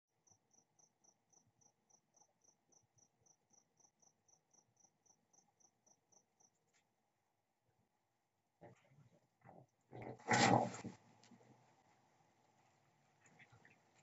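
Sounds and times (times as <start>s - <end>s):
cricket chirping: 0.1s - 6.8s.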